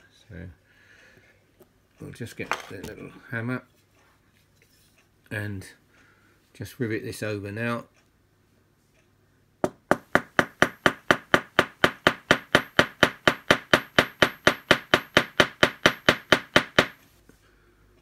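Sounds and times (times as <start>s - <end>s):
small hammer tapping rivet: 9.6s - 17.0s.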